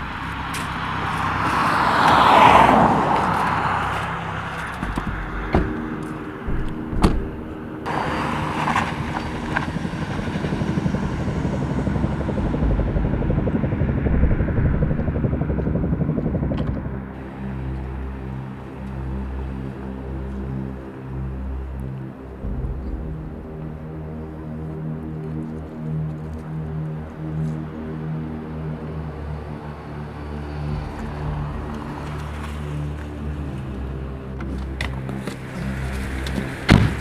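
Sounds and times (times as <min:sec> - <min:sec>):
car passing: 0:00.0 - 0:25.8, 0:28.6 - 0:37.0
low traffic rumble: 0:00.0 - 0:37.0
sharp knocks: 0:04.8 - 0:07.7, 0:22.4 - 0:24.1.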